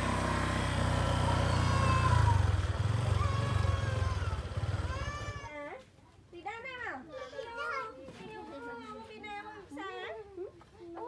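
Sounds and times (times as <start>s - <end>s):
motor scooter engine running: 0.0s - 5.5s.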